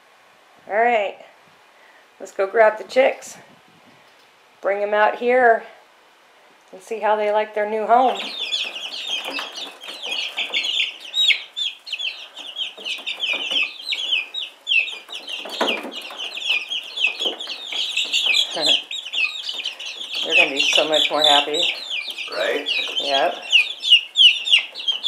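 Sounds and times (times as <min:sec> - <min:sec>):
baby chicks peeping: 0:06.8 - 0:25.0.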